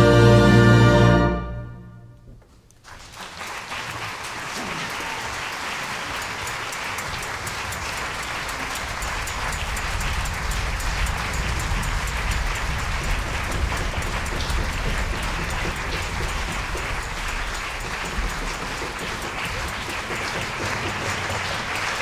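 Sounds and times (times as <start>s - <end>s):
orchestra sustained chord: 0.0s - 2.2s
audience applause: 2.8s - 22.0s.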